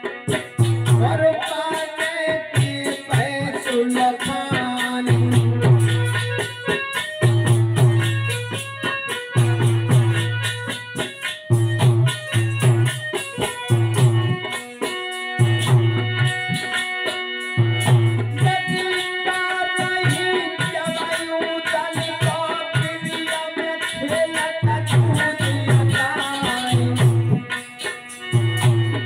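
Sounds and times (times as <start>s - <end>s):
harmonium playing chords: 0.0s - 29.0s
hand drum strokes: 4.2s - 18.7s.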